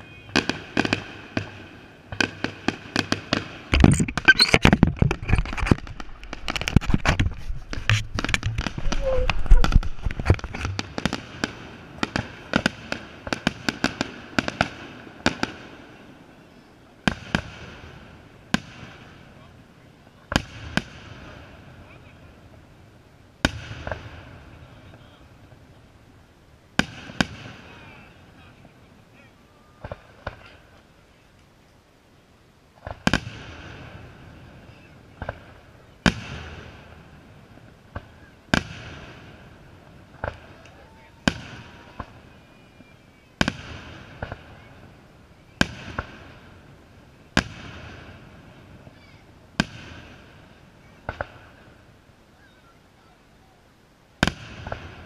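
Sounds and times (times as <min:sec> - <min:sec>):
fireworks bursting and crackling: 0:00.0 - 0:31.4, 0:32.7 - 0:52.3, 0:54.1 - 0:55.0
firework shells booming: 0:00.3 - 0:15.7, 0:54.2 - 0:55.0.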